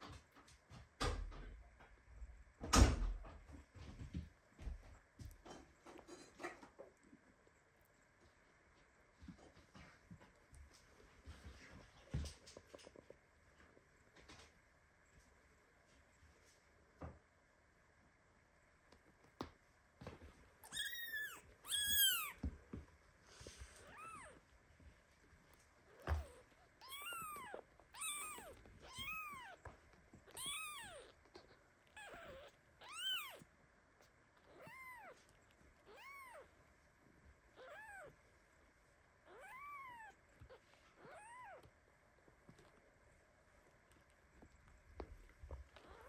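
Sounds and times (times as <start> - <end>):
kitten meowing shrilly: 20.7 - 22.4, 26.1 - 29.6, 30.3 - 31.1, 32.0 - 33.4, 35.9 - 36.4.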